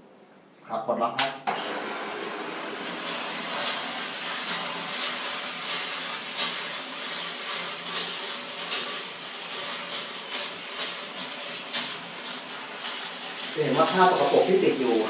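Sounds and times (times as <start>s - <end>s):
steam cleaner hissing: 1.6s - 15.0s.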